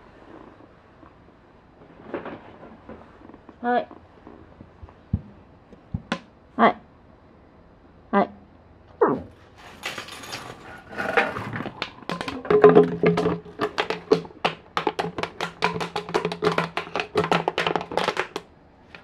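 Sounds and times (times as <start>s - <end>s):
dog chewing plastic bottle: 11.4s - 19.0s.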